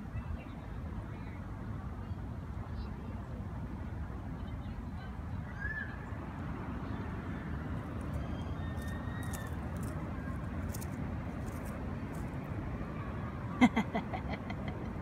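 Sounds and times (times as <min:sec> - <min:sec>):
low outdoor rumble: 0:04.0 - 0:15.0.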